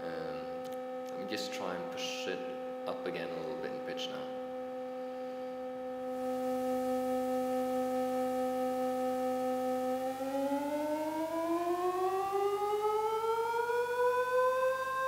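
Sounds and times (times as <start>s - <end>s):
synthesized tone gliding up: 6.0s - 15.0s.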